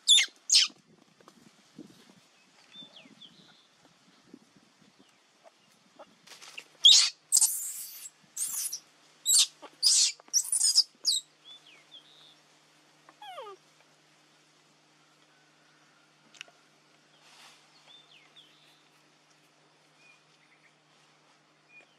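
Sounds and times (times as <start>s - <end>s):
baby monkey shrieking: 0.0s - 0.7s, 6.6s - 11.2s
monkey whimpering cry: 6.8s - 11.2s.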